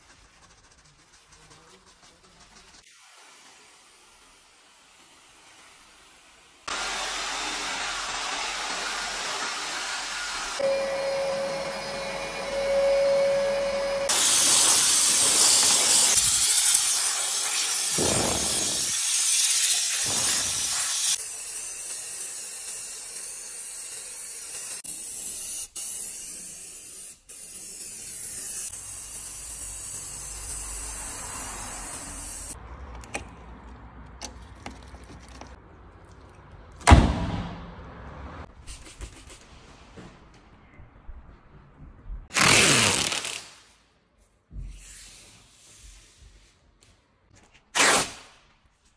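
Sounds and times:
steam cleaner jetting steam: 1.8s - 32.6s.

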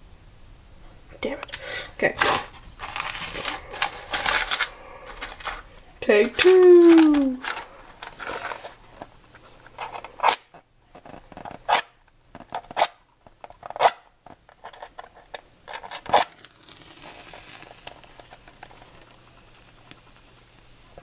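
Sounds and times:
match flaring hiss: 16.2s - 20.2s.

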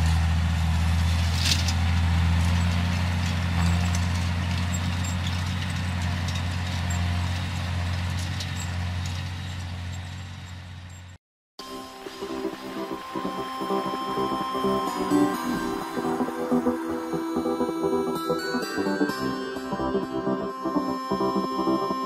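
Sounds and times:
tractor diesel engine droning: 0.0s - 22.0s.

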